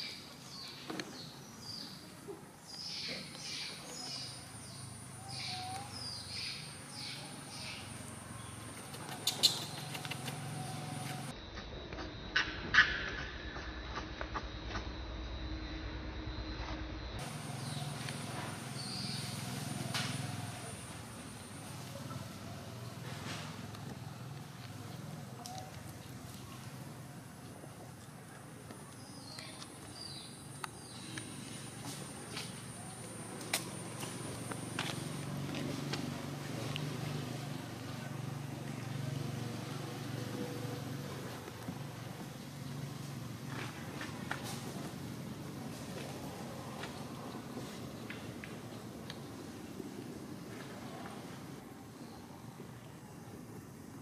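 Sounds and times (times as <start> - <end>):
high falling chirping calls: 2.7 - 11.3, 17.2 - 21.0.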